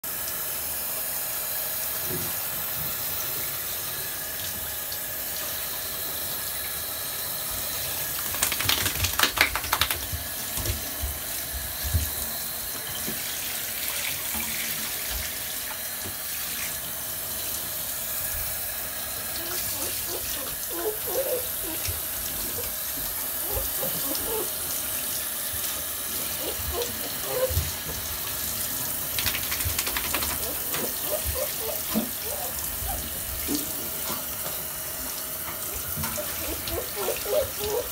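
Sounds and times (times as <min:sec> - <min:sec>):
shower head spraying water: 0:00.3 - 0:37.9.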